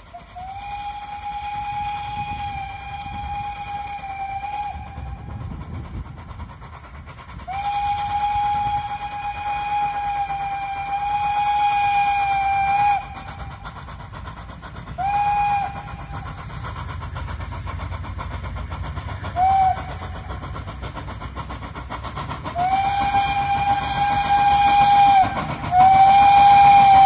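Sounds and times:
steam whistle blasts: 0.0 - 5.5, 7.5 - 13.5, 15.0 - 16.3, 19.3 - 20.2, 22.5 - 27.0
low rumble of train: 0.0 - 27.0.

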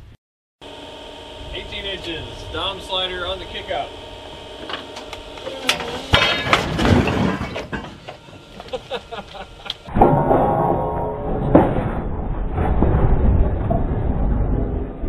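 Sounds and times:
loud clatter and rumble: 1.4 - 8.5, 9.8 - 15.0.

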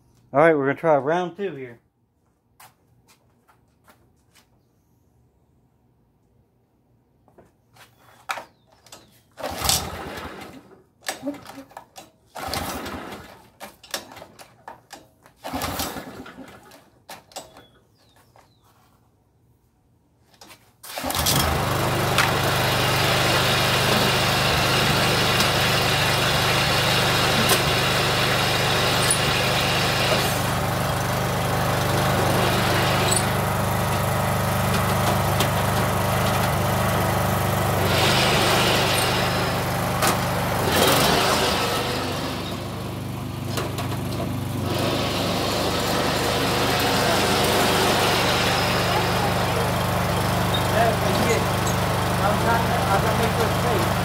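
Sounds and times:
small engine running: 21.0 - 54.0.

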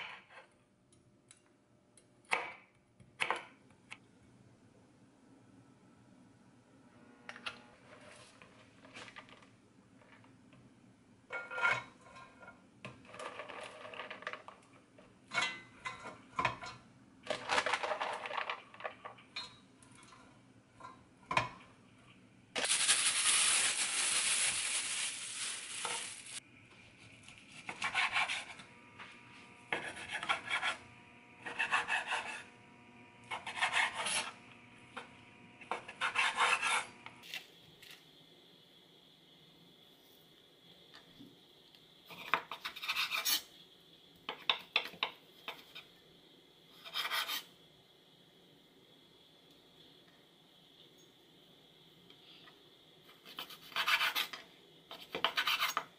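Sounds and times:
bean sprouts rustling: 22.6 - 26.4.

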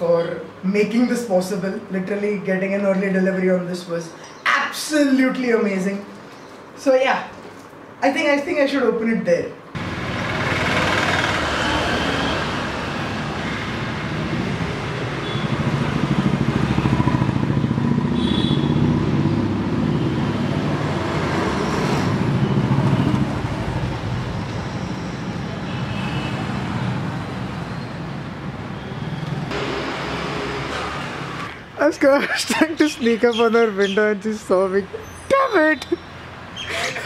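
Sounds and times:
motorcycle engine pulling away: 9.8 - 23.9.

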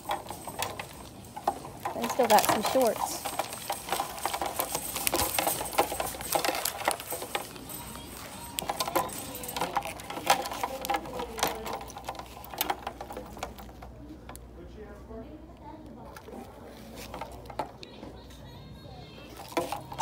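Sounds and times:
sharp clicks and clatters: 0.0 - 14.4
faint background music: 0.0 - 20.0
voices: 0.0 - 20.0.

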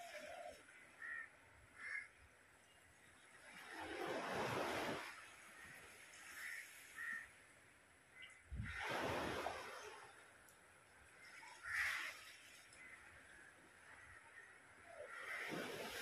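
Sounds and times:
surf rushing as waves break: 0.0 - 1.0, 3.1 - 7.8, 8.5 - 14.0, 15.0 - 16.0
crow cawing: 1.0 - 2.2, 6.4 - 7.3, 11.6 - 12.2.

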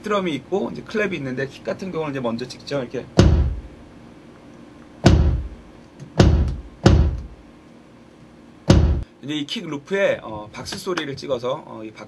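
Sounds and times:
programmed kick drum loop: 3.2 - 3.8, 5.0 - 5.6, 6.2 - 7.4, 8.7 - 9.0.

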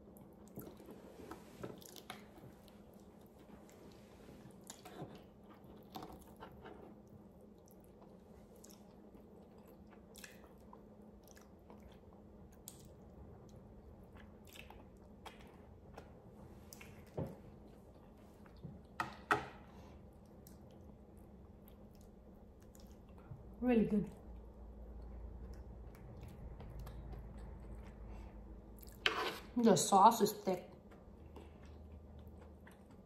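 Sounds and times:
chewing and mouth sounds: 0.0 - 18.9, 20.1 - 23.5, 24.2 - 29.0, 30.8 - 33.0.

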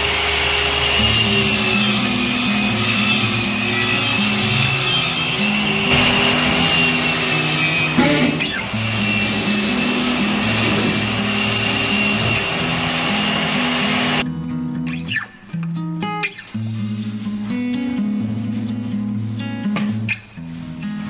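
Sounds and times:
power tool whining: 0.0 - 14.2.

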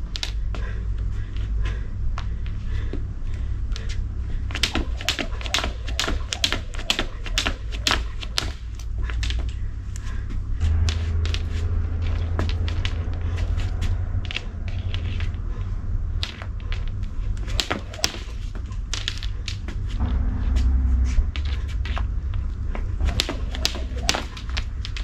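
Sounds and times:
low rumble: 0.0 - 25.0
skipping rope slapping ground: 3.7 - 20.0, 21.4 - 25.0.

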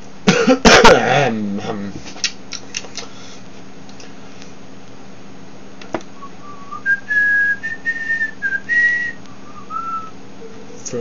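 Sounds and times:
man whistling a slow tune: 6.2 - 10.2.

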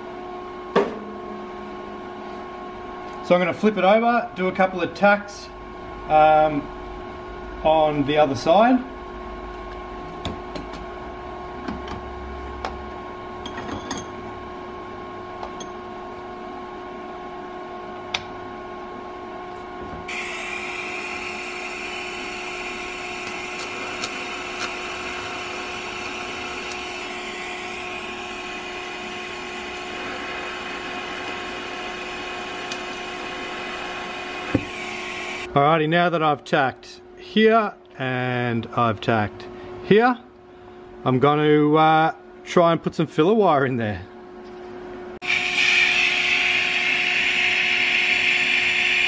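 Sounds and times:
steady hum: 0.0 - 41.3, 42.0 - 49.0
welding arc hissing: 20.1 - 35.5, 45.2 - 49.0.

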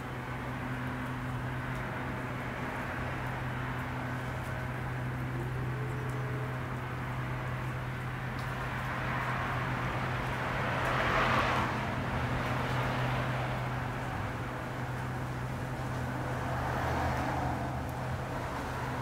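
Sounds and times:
vehicle passing: 9.2 - 19.0.

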